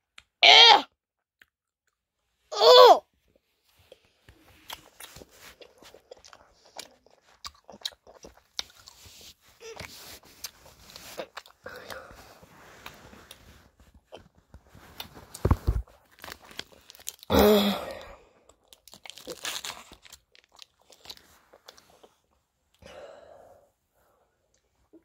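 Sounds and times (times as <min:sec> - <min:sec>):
gum chewing and crunching: 0:03.9 - 0:13.4, 0:14.0 - 0:17.3, 0:17.9 - 0:22.2.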